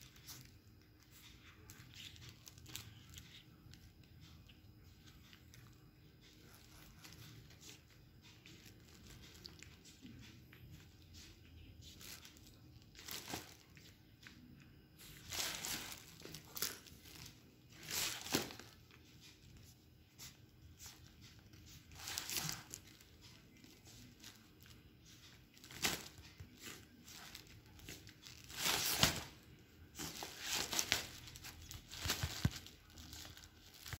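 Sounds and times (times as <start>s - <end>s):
cardboard and paper crinkling: 11.8s - 13.9s, 15.0s - 19.3s, 20.2s - 34.0s.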